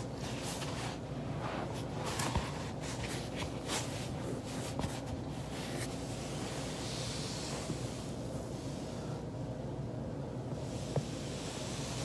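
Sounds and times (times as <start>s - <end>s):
clothing rustling: 0.0s - 9.1s
steady low hum: 0.0s - 12.0s.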